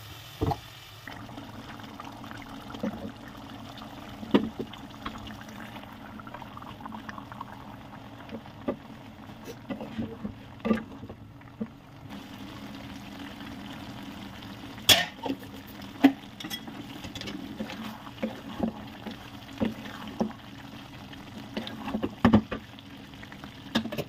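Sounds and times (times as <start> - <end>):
curry simmering sizzle: 0.0 - 24.0
wooden spatula scraping a pot: 9.4 - 11.1, 16.4 - 20.4, 21.5 - 22.3.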